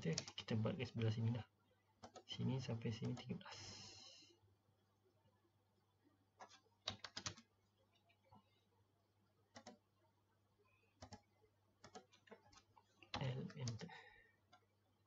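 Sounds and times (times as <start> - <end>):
mouse and keyboard clicks: 9.5 - 9.8, 11.0 - 11.2, 11.8 - 13.8.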